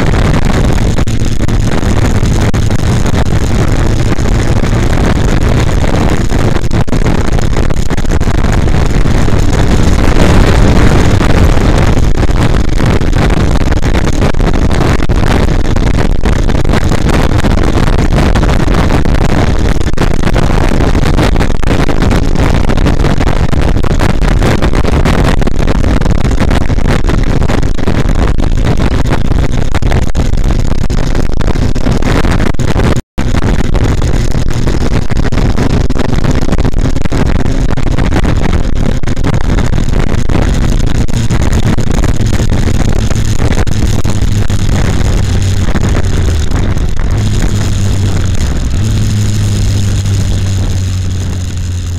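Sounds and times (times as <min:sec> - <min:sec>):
motorcycle engine running: 0:00.0 - 0:25.0, 0:32.6 - 0:51.9
wind buffeting microphone: 0:00.0 - 0:51.9.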